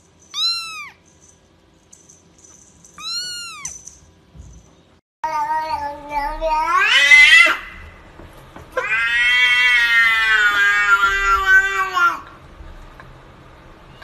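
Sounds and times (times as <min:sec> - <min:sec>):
cat meowing: 0:00.3 - 0:01.0, 0:03.0 - 0:03.8, 0:08.8 - 0:12.3.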